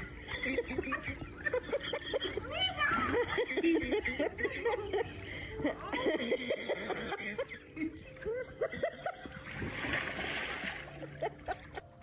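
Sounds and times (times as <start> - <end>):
people laughing: 0.0 - 12.0
people talking: 2.0 - 6.6
person splashing into pool: 9.5 - 11.0.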